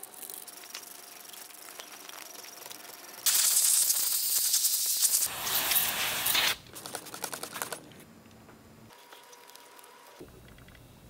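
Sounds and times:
spray hissing: 0:03.2 - 0:06.6.

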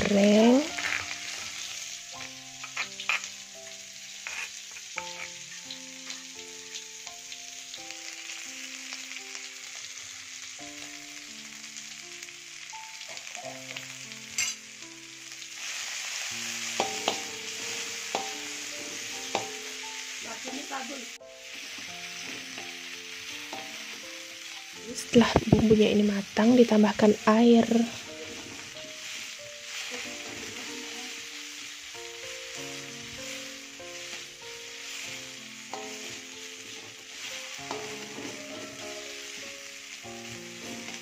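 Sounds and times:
soft background music: 0:00.0 - 0:41.0
spice paste sizzling in hot oil: 0:00.0 - 0:41.0
spatula scraping a wok: 0:00.6 - 0:03.4, 0:04.1 - 0:05.5, 0:15.8 - 0:20.8, 0:28.0 - 0:31.8, 0:32.6 - 0:39.5.

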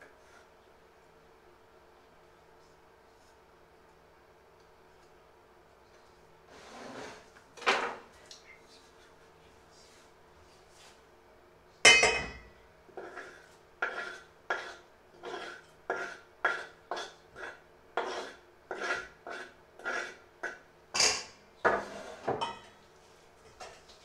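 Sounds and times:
spoon scraping wooden board: 0:06.5 - 0:07.3, 0:13.0 - 0:20.2, 0:21.7 - 0:22.3
spoon clinking on steel bowl: 0:11.9 - 0:12.5.

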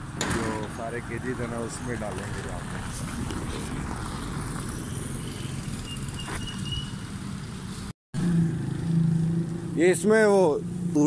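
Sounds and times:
street traffic rumble: 0:00.0 - 0:11.0
motorcycle passing: 0:07.0 - 0:11.0.

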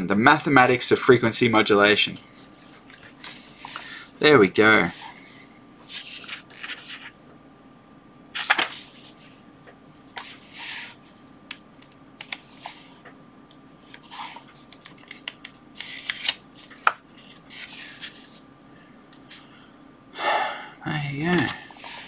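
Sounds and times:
book pages rustling: 0:02.6 - 0:04.0, 0:05.8 - 0:07.2, 0:08.4 - 0:09.4, 0:10.1 - 0:11.0, 0:12.2 - 0:13.1, 0:13.8 - 0:18.4, 0:21.3 - 0:22.0.

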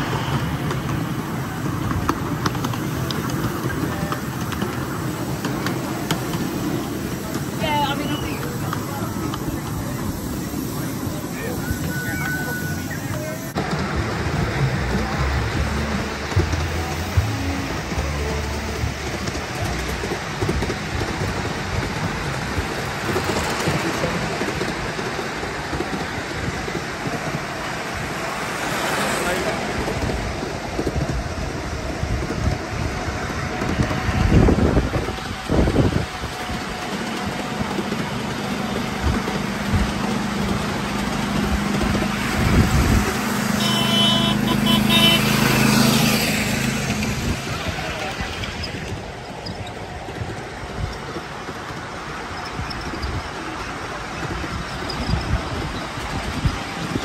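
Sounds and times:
miniature train rumbling: 0:00.0 - 0:57.0
wheels rattling on rails: 0:00.0 - 0:57.0
high squeal: 0:10.4 - 0:13.6.

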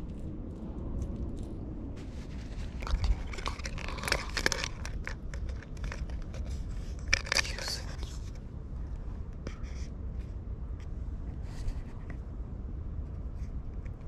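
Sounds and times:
handling clicks and crackles: 0:00.0 - 0:08.4
low rumble: 0:00.0 - 0:14.0.

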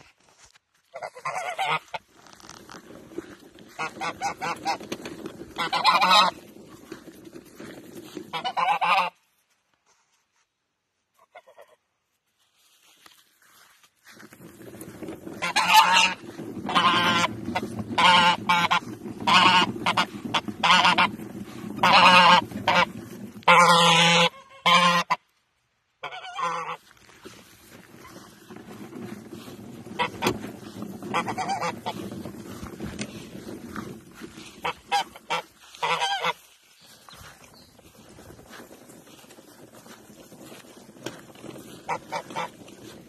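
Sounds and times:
goose honking: 0:00.9 - 0:02.1, 0:03.6 - 0:06.8, 0:08.2 - 0:09.2, 0:15.4 - 0:25.3, 0:26.0 - 0:26.9, 0:29.2 - 0:36.6, 0:41.0 - 0:43.0.

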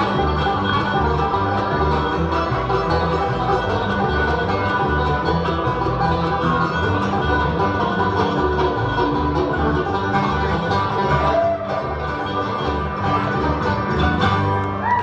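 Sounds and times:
bluegrass band playing: 0:00.0 - 0:15.0
upright bass notes: 0:00.0 - 0:15.0.

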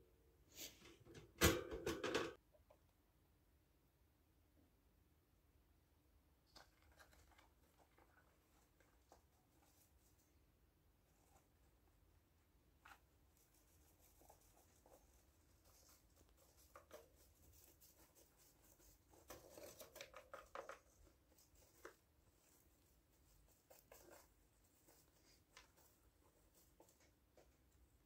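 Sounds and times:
hamster scratching in bedding: 0:12.8 - 0:27.7.

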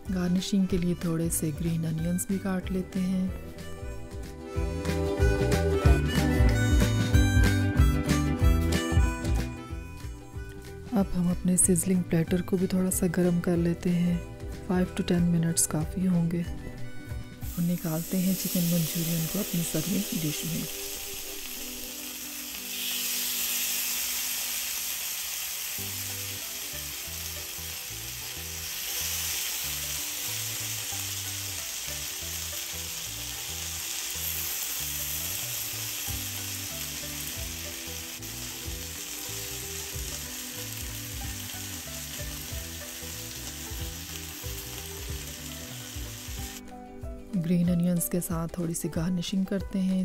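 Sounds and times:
food sizzling on hot platter: 0:17.4 - 0:46.6.

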